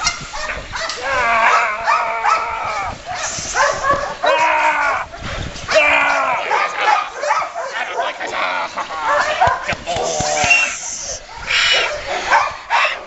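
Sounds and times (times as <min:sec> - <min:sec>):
dog vocalising: 0:06.5 - 0:13.0.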